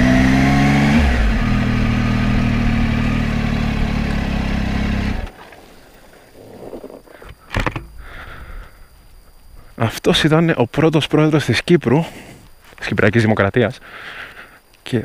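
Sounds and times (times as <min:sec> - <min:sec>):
motorcycle engine running: 0:00.0 - 0:05.4.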